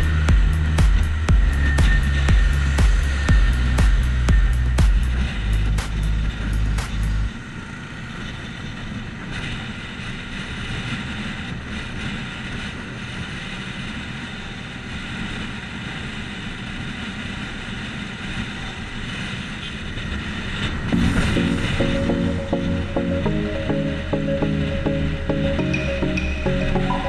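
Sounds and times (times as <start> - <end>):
motorcycle engine running: 0.0 - 7.3
road noise: 0.0 - 27.0
wind noise: 0.0 - 27.0.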